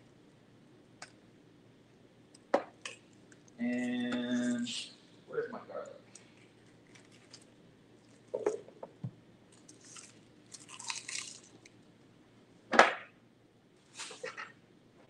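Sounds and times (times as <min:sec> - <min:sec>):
garlic skins crackling and rustling: 0:06.1 - 0:08.4, 0:09.5 - 0:11.8.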